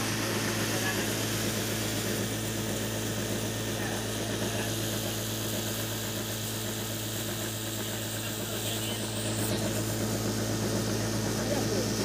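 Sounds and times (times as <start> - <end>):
sewing machine running: 0.0 - 12.0.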